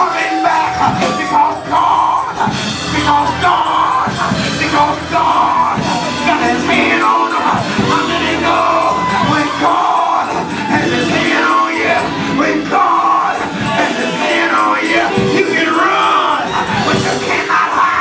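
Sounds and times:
congregation shouting and cheering: 0.0 - 18.0
loud live gospel music: 0.0 - 18.0.

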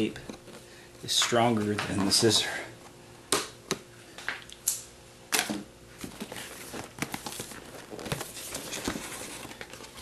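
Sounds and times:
packing rustling and clicking: 6.0 - 10.0.

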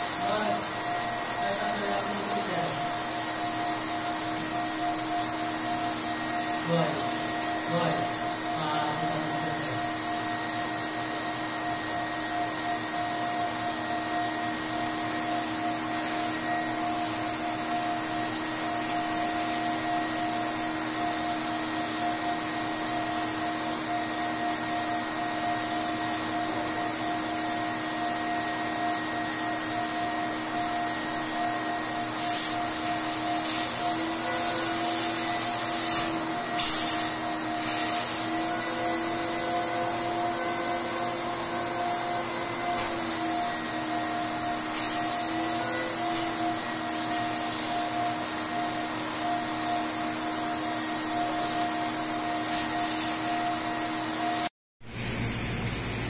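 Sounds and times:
water jet hissing: 0.0 - 11.4, 14.3 - 23.4, 29.6 - 48.4, 49.4 - 54.2
pressure washer humming: 0.0 - 56.0.

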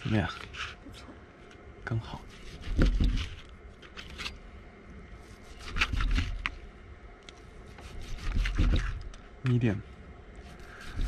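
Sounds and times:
knife scraping on a wooden board: 2.2 - 4.4, 5.3 - 6.5, 7.7 - 9.1, 10.4 - 11.0.

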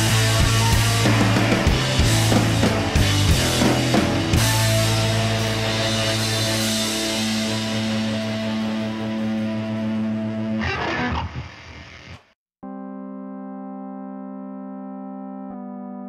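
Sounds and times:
drum hits: 0.0 - 7.8
rock music with guitar: 0.0 - 12.3.

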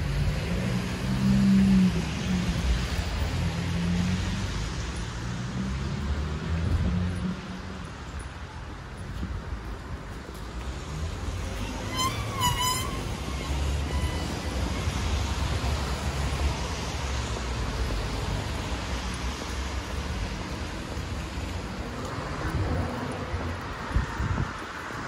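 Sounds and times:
cars passing on wet road: 0.0 - 25.0.

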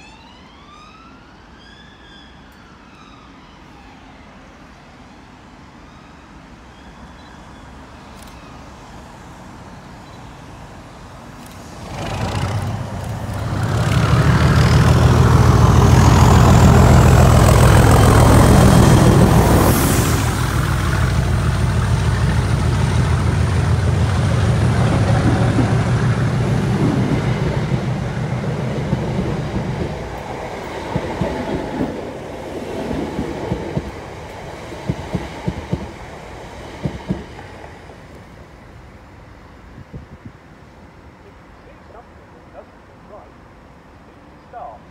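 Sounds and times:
train wheels clicking over rail joints: 11.4 - 19.5, 20.4 - 38.3
diesel locomotive engine working hard: 11.4 - 38.1.

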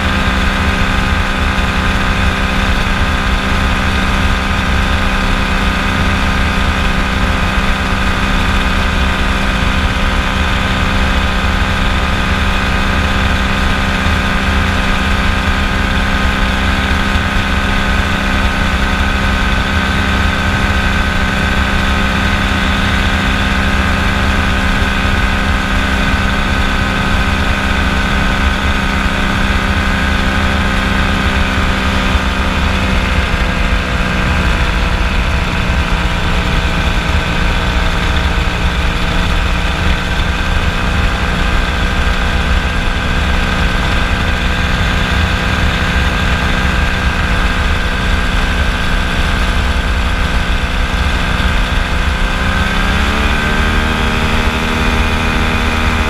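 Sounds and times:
aircraft engine and propeller drone: 0.0 - 56.0.

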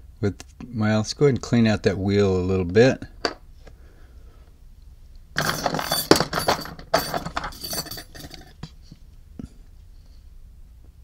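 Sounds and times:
small metal parts clinking: 5.4 - 8.7.

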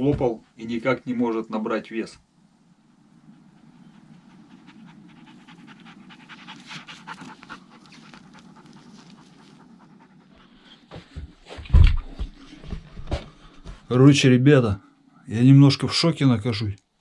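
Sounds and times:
dog panting and sniffing: 3.6 - 11.4.

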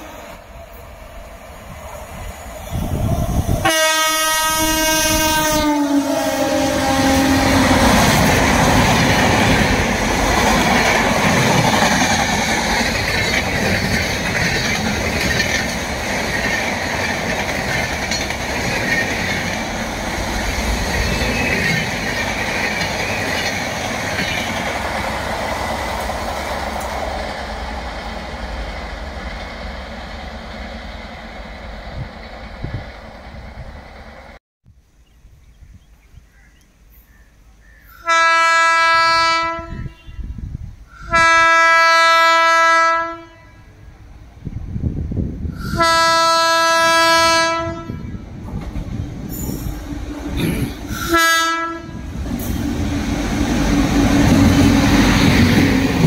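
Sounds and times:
train coaches rumbling on rails: 0.0 - 34.4, 37.8 - 56.0
train horn: 3.6 - 8.1, 38.0 - 43.8, 45.6 - 48.2, 49.5 - 52.6.

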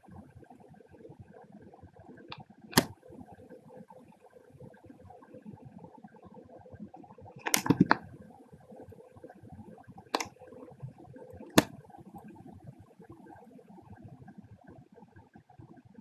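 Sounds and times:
computer mouse clicks: 2.3 - 3.0, 7.4 - 8.1, 10.1 - 10.4, 11.3 - 12.3.

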